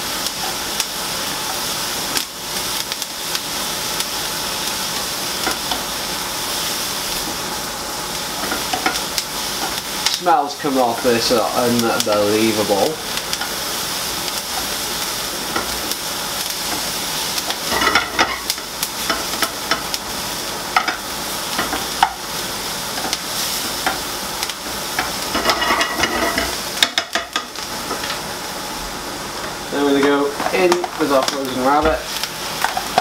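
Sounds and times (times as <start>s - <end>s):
vegetables sizzling in frying pan: 0.0s - 33.0s
spatula scraping pan: 17.5s - 19.9s, 24.9s - 28.1s.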